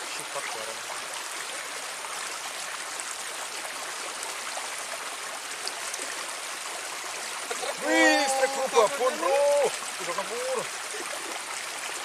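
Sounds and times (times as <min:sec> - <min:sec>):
shallow water trickling in a ditch: 0:00.0 - 0:12.0.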